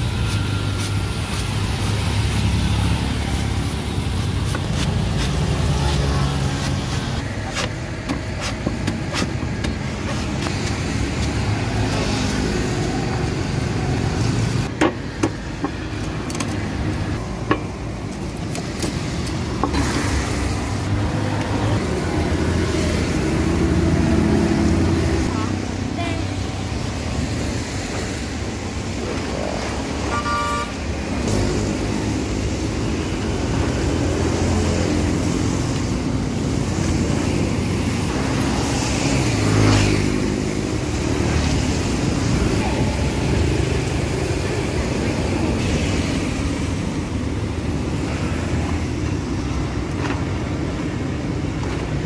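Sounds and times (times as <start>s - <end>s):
road traffic rumble: 0.0s - 52.0s
cleaver chopping coconut on wood: 7.5s - 10.5s.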